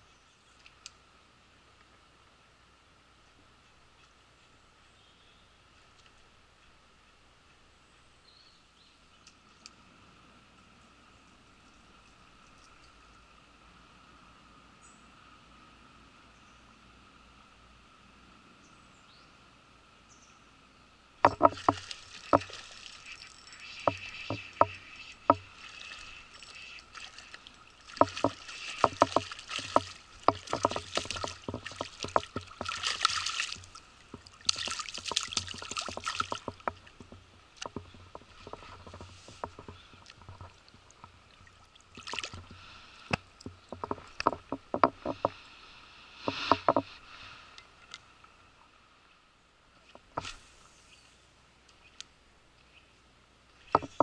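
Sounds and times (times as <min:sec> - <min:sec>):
handling knocks and clicks: 0:21.2 - 0:22.6, 0:23.6 - 0:25.5, 0:28.0 - 0:41.2, 0:43.1 - 0:45.4, 0:53.7 - 0:54.0
splashing in shallow river water: 0:21.2 - 0:48.2.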